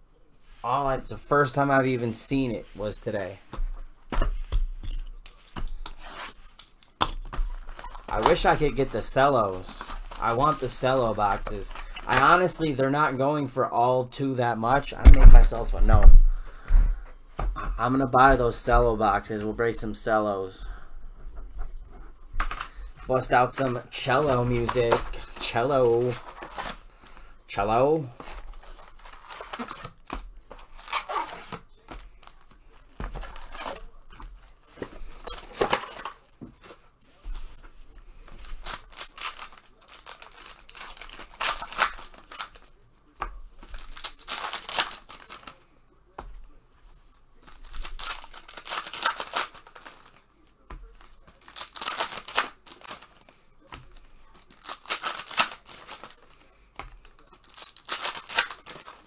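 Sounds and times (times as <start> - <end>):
card pack wrappers ripping: 23.5 - 27.2, 28.0 - 36.3, 38.3 - 42.7, 43.6 - 45.6, 47.4 - 50.2, 51.0 - 59.0.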